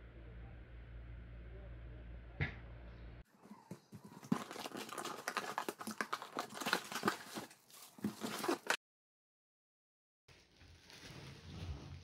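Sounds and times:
cardboard and plastic crinkling: 3.4s - 8.8s.

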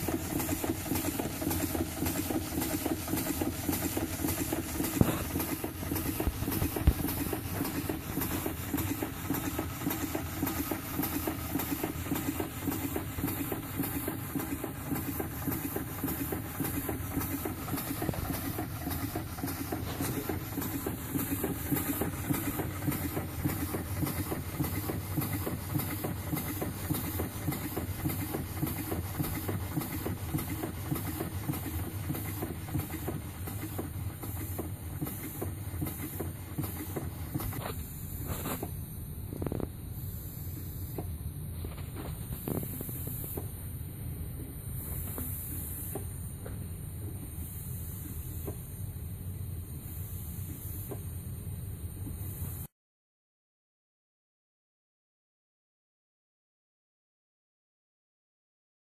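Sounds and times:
steam hissing: 0.0s - 43.6s
steam engine running: 0.0s - 48.9s.

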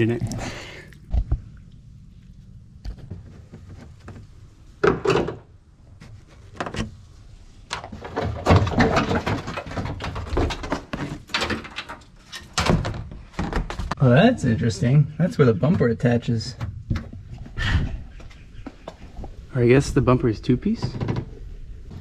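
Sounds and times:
plastic panel rattling: 7.7s - 14.0s, 20.7s - 22.0s.

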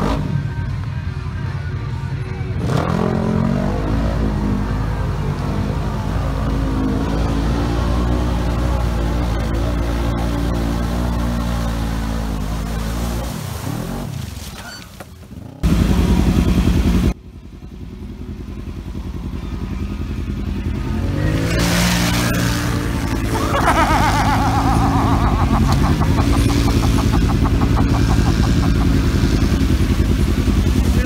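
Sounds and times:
off-road vehicle engines revving: 0.0s - 0.9s, 1.9s - 31.0s.

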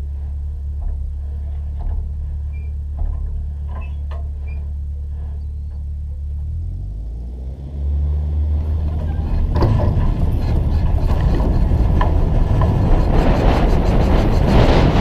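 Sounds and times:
knocks and rattles over rough ground: 0.0s - 7.1s, 8.3s - 15.0s
glider rolling on grass: 8.4s - 15.0s.

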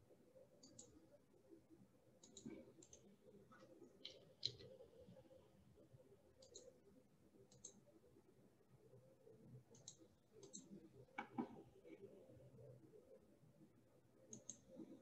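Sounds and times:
computer mouse clicks: 0.6s - 1.0s, 2.2s - 5.0s, 6.4s - 6.8s, 7.4s - 7.9s, 9.7s - 12.1s, 14.2s - 15.0s.

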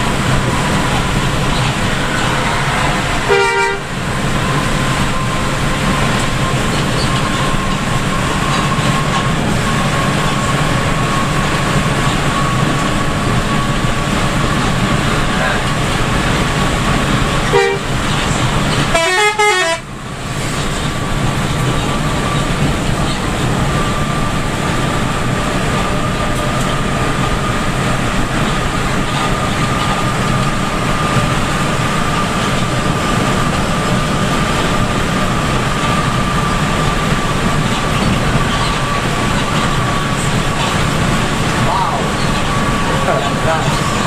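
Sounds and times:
bus road noise: 0.0s - 44.0s
horn blast: 0.5s - 5.3s, 17.5s - 17.9s, 18.9s - 19.9s.

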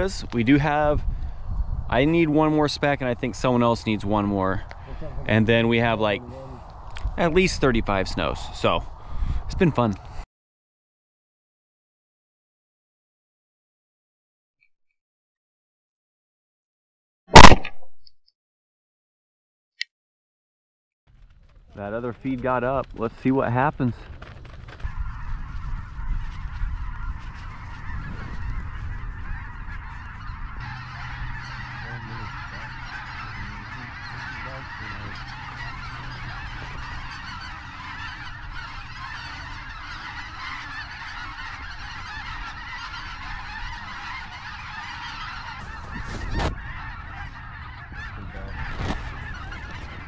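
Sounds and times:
snow geese honking: 0.0s - 1.2s, 2.0s - 8.7s, 21.5s - 50.0s.

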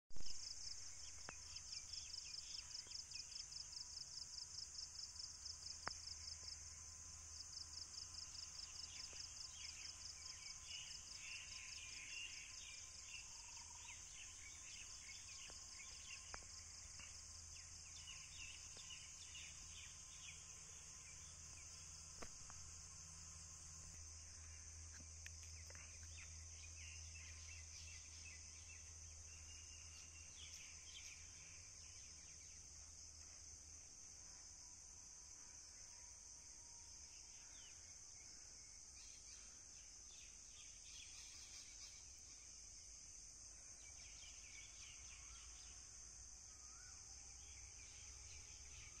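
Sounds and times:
high-pitched insect chorus: 0.2s - 49.0s
faint bird chirps: 35.4s - 42.5s.

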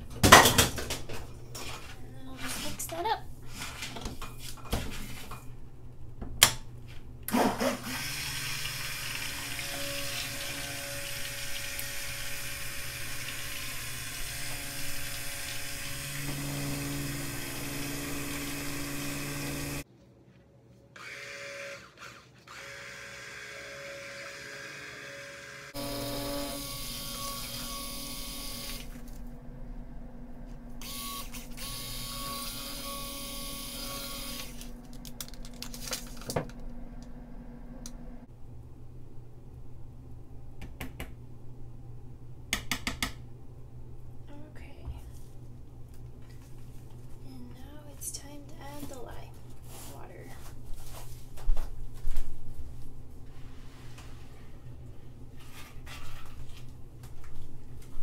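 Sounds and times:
stick blender motor whine: 7.3s - 19.8s, 21.0s - 29.2s, 30.8s - 35.0s.

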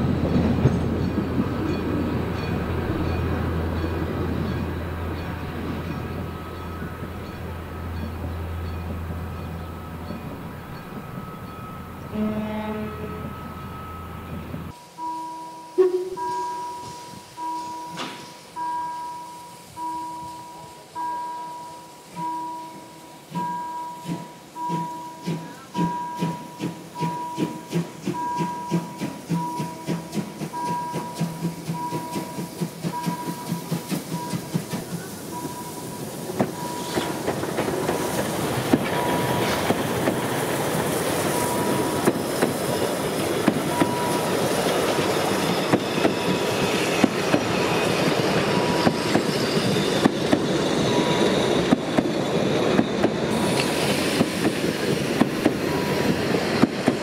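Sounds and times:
wheels clacking over rail joints: 0.0s - 14.8s, 23.4s - 57.0s
train coaches rumbling past: 0.0s - 57.0s
steam locomotive exhaust chuffs: 15.7s - 57.0s.

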